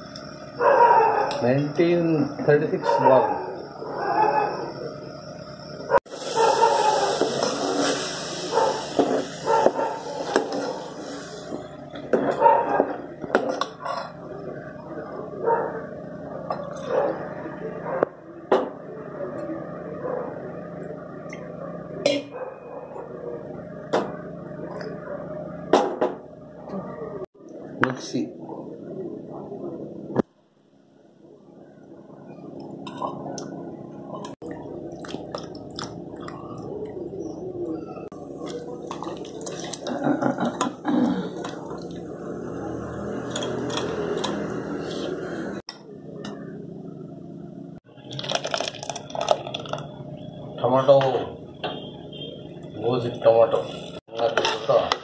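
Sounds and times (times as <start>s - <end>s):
water dripping and splashing: 34.9s - 36.5s
spoon stirring thick mixture: 38.4s - 39.9s.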